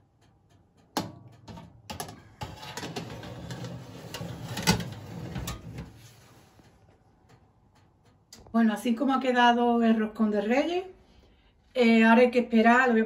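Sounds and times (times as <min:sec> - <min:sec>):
metal baking tray scraping: 0:02.4 - 0:06.8.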